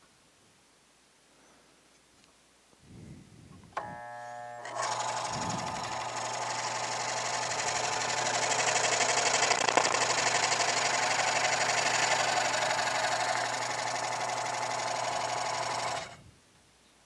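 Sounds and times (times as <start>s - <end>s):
electric motor hum: 3.8s - 16.2s
scroll saw blade chattering: 5.0s - 16.1s.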